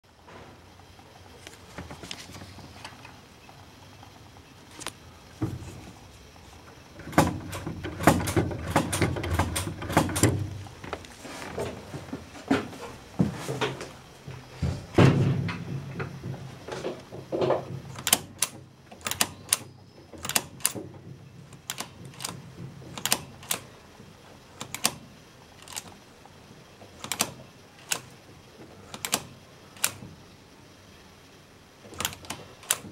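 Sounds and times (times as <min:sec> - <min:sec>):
throttle linkage clicking: 0:07.0 - 0:10.6, 0:16.8 - 0:23.9, 0:24.5 - 0:26.0, 0:26.8 - 0:30.2, 0:31.9 - 0:32.9
heavier knocks: 0:14.6 - 0:18.0.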